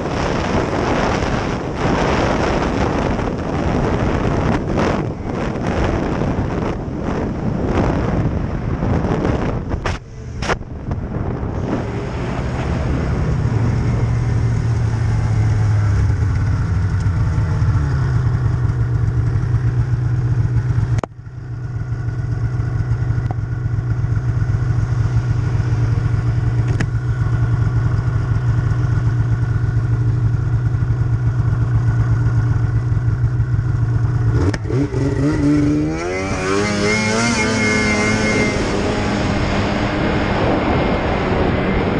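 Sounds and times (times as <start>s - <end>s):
wind buffeting microphone: 0.0s - 17.8s, 34.4s - 41.9s
snowmobile engine droning: 0.0s - 41.9s.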